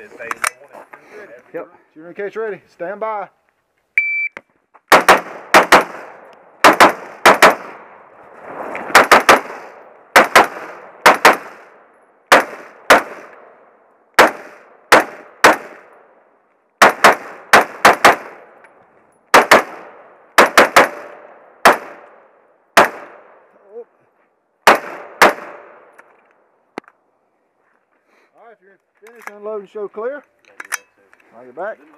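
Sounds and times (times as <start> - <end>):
rifle shots with echo: 4.9 - 8.0, 8.9 - 13.6, 14.2 - 16.1, 16.8 - 18.6, 19.3 - 23.4, 24.6 - 25.9.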